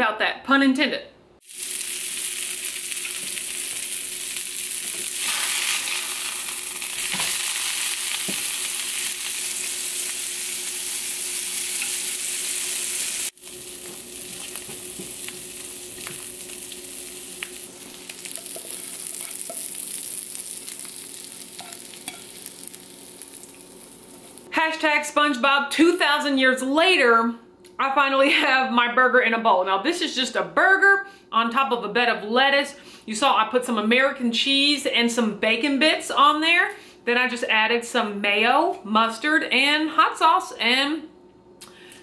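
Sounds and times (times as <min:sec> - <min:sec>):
burger patty sizzling in a pan: 0:01.4 - 0:24.5.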